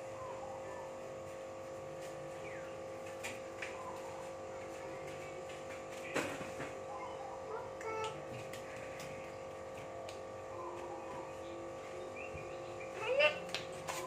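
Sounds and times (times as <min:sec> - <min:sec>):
steady hum: 0:00.0 - 0:14.0.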